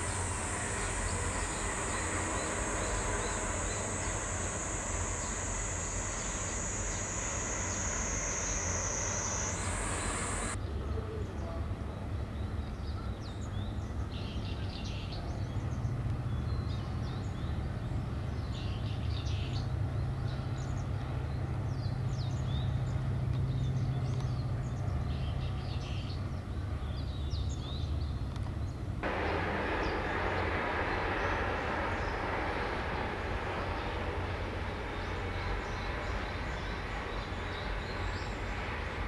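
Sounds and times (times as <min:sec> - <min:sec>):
loud rushing noise: 0:00.0 - 0:10.6, 0:29.0 - 0:39.0
small birds chirping: 0:00.0 - 0:10.6
low mechanical hum: 0:00.0 - 0:12.0, 0:15.2 - 0:39.0.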